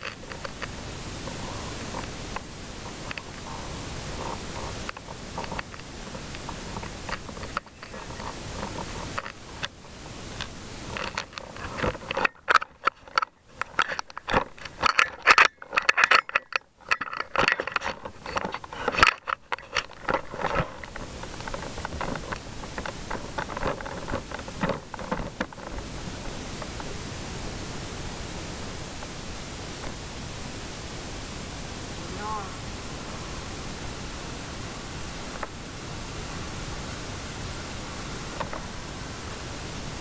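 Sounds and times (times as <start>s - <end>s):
camera rubbing against coat: 0.0s - 26.8s
steady rushing noise: 0.0s - 40.0s.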